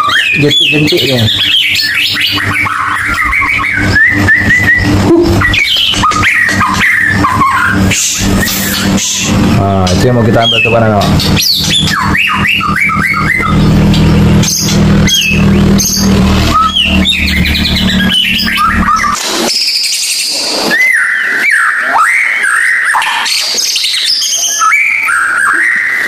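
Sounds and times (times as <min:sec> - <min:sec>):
bird singing whistles and trills: 0:00.0 - 0:09.4, 0:10.2 - 0:26.0
low steady hum: 0:01.3 - 0:19.2.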